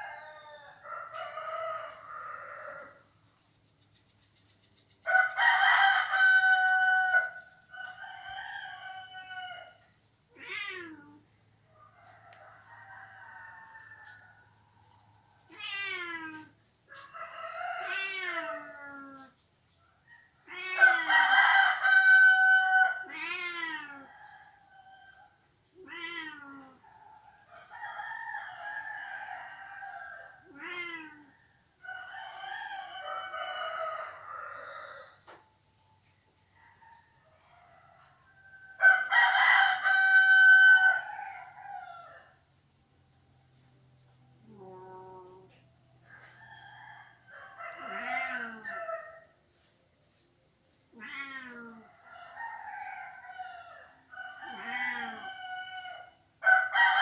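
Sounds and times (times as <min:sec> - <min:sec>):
rooster crowing: 0:00.0 - 0:03.1, 0:05.0 - 0:09.9, 0:11.7 - 0:15.6, 0:16.3 - 0:19.3, 0:20.0 - 0:25.4, 0:26.6 - 0:35.5, 0:36.4 - 0:42.6, 0:44.6 - 0:49.5, 0:51.0 - 0:57.0
steady high hiss: 0:40.8 - 0:56.8.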